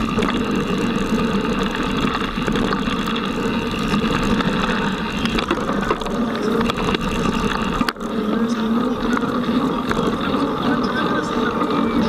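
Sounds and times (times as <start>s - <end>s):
bike rattle and rumble: 0.0s - 12.0s
bike tyres rolling on dirt: 0.0s - 12.0s.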